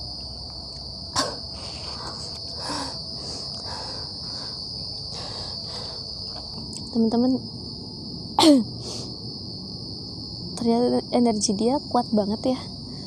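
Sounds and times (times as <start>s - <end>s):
night insects chirring: 0.0s - 13.0s.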